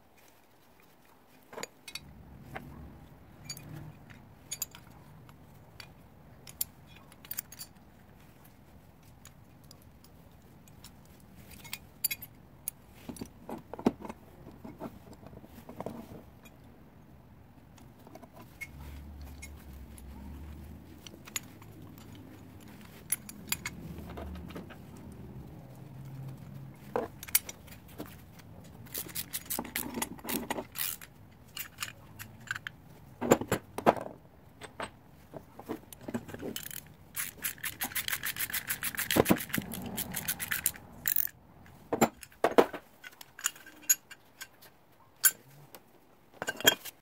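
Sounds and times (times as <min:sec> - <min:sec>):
metal hardware clinking on wood: 0:03.4 - 0:05.0, 0:21.0 - 0:24.8, 0:26.4 - 0:28.2, 0:28.8 - 0:35.0, 0:35.6 - 0:44.6, 0:46.4 - 0:47.0
low steady rumble: 0:14.4 - 0:37.2.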